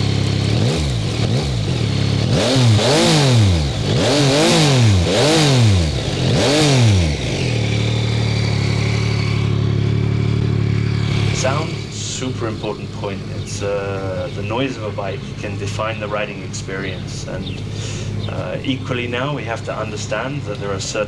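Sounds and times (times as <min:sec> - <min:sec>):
motorcycle engine revving and idling: 0:00.0 - 0:21.0.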